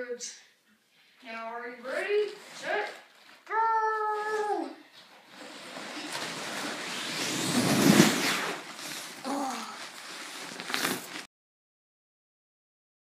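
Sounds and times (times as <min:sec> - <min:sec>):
sleeping pad scraping down stairs: 0:01.8 - 0:03.4, 0:05.0 - 0:11.3
child's short voice: 0:09.2 - 0:09.8.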